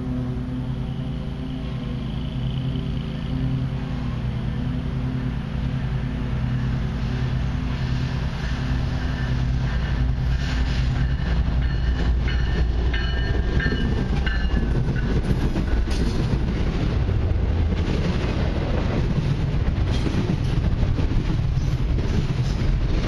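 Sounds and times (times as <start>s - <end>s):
diesel locomotives passing: 0.0s - 23.0s
freight cars rumbling: 0.0s - 23.0s
wheels clacking over rail joints: 8.4s - 23.0s.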